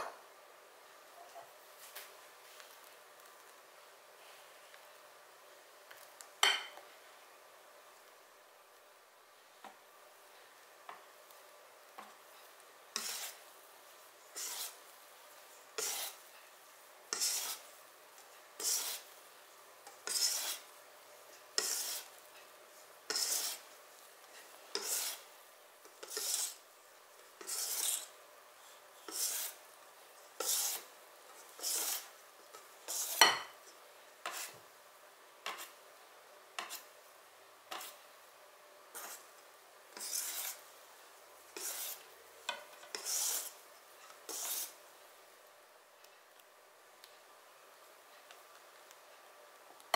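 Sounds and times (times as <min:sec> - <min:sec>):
whisk scraping a metal bowl: 0:12.9 - 0:13.4, 0:14.2 - 0:14.8, 0:15.7 - 0:16.3, 0:17.1 - 0:17.7, 0:18.6 - 0:19.2, 0:19.9 - 0:20.7, 0:21.5 - 0:22.2, 0:23.1 - 0:26.6, 0:27.4 - 0:28.1, 0:29.0 - 0:29.6, 0:30.3 - 0:33.4, 0:34.2 - 0:34.6, 0:37.7 - 0:38.0, 0:38.9 - 0:39.3, 0:39.9 - 0:40.6, 0:41.5 - 0:43.6, 0:44.2 - 0:44.8.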